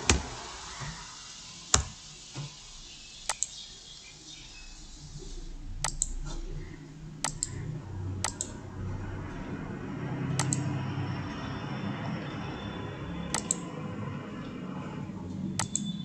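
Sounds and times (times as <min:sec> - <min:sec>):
low room noise: 0:00.0 - 0:16.0
computer mouse clicking: 0:03.3 - 0:03.6, 0:05.8 - 0:06.2, 0:07.2 - 0:07.6, 0:08.2 - 0:08.6, 0:10.4 - 0:10.7, 0:13.3 - 0:13.7, 0:15.6 - 0:15.9.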